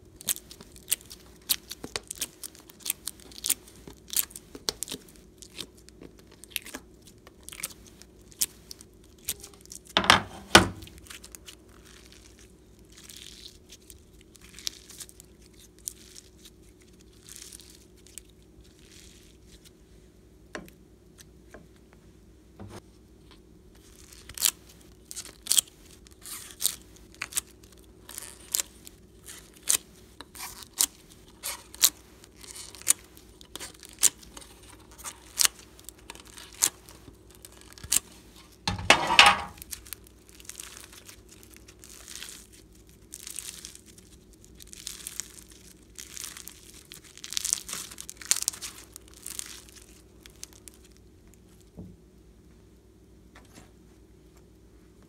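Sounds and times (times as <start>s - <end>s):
slime crackling: 23.8s - 38.6s, 39.6s - 51.0s.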